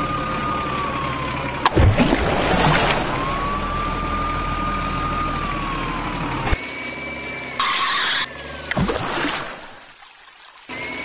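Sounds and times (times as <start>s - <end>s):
truck engine humming with whine: 0.0s - 11.0s.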